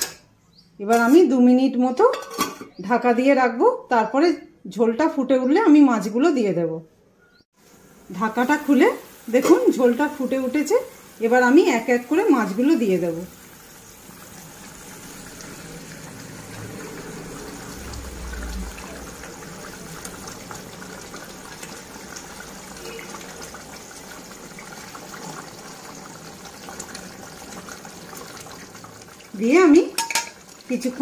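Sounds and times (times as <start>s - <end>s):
gravy bubbling and crackling: 13.3s - 31.0s.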